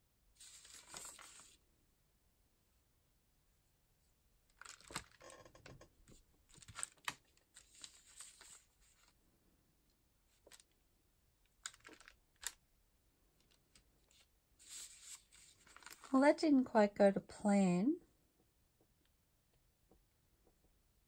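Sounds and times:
rice paper crinkling: 0:00.4 - 0:01.6, 0:04.6 - 0:05.2, 0:06.5 - 0:09.2, 0:11.6 - 0:12.6, 0:13.4 - 0:16.2.

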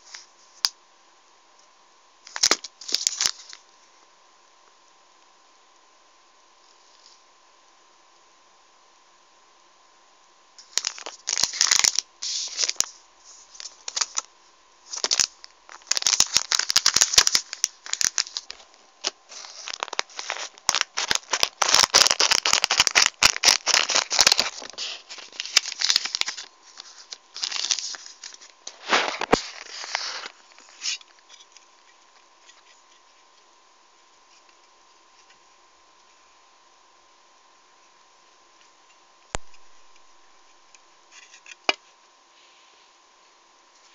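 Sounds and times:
plastic packaging crinkling: 0:02.2 - 0:03.6, 0:10.6 - 0:31.9.

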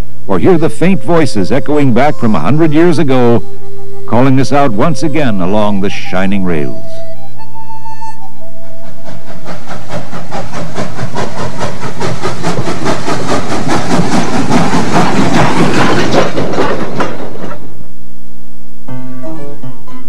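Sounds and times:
steam locomotive chuffing: 0:00.3 - 0:07.2, 0:07.9 - 0:17.8
steam hissing: 0:08.5 - 0:17.7.

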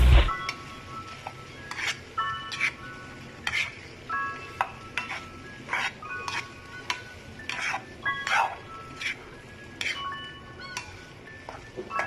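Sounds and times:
light sizzle: 0:00.0 - 0:12.0
spatula scraping frying pan: 0:01.6 - 0:03.9, 0:05.0 - 0:10.1.

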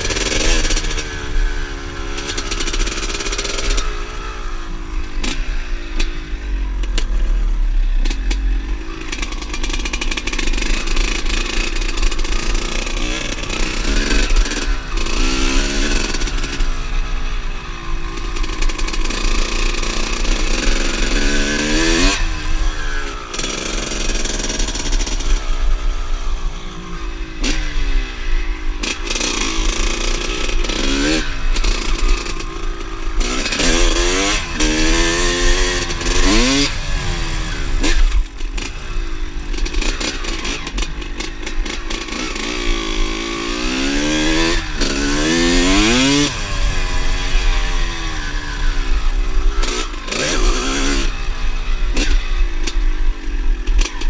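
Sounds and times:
two-stroke motorcycle engine revving: 0:00.0 - 0:54.0.

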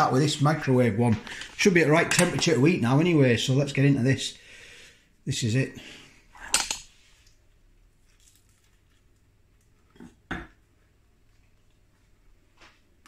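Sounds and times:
quiet chewing: 0:07.2 - 0:10.1.

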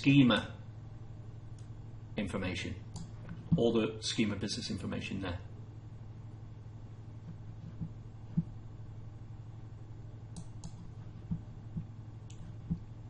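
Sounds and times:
low steady hum: 0:00.0 - 0:13.0
computer mouse clicking: 0:02.9 - 0:03.4, 0:10.3 - 0:12.8.

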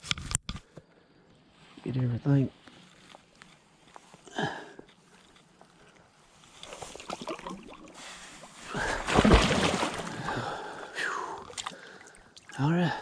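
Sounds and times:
water sloshing from wading: 0:05.8 - 0:10.7, 0:11.4 - 0:12.7.

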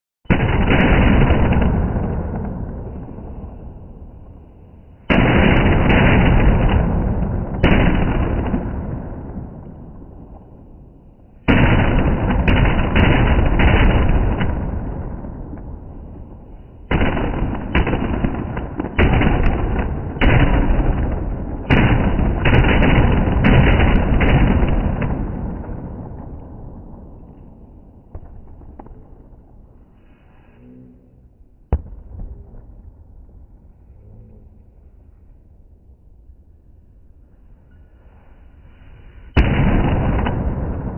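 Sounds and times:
firecrackers crackling: 0:00.3 - 0:30.5, 0:38.0 - 0:40.9.

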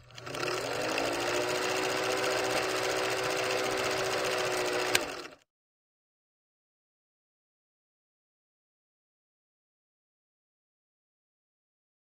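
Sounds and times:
film projector clatter: 0:00.0 - 0:05.4.

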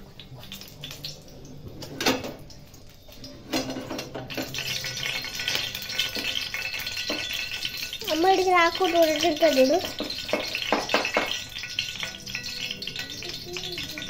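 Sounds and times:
frying pan clank: 0:03.5 - 0:14.0
frying pan knocking and scraping: 0:03.5 - 0:14.0.

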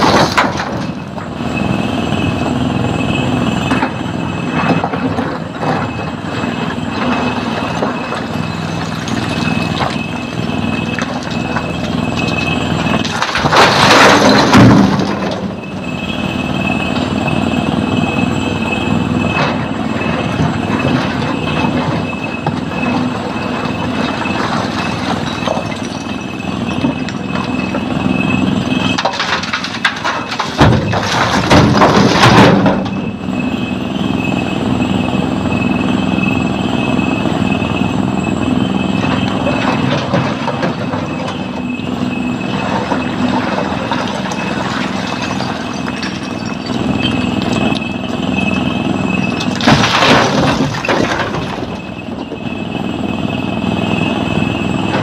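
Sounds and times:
stone crashing into truck bed: 0:00.0 - 0:01.0, 0:12.2 - 0:15.5, 0:29.0 - 0:33.0, 0:49.4 - 0:51.9
excavator diesel engine running: 0:00.0 - 0:55.0.

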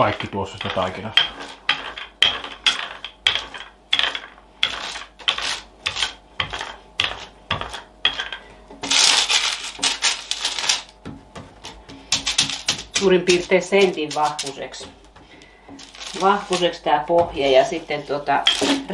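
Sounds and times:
rolling pin rolling dough: 0:00.0 - 0:18.9.

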